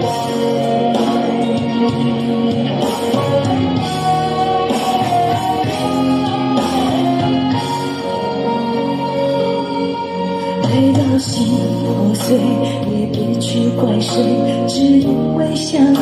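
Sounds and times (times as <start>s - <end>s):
instrumental pop music: 0.0s - 16.0s.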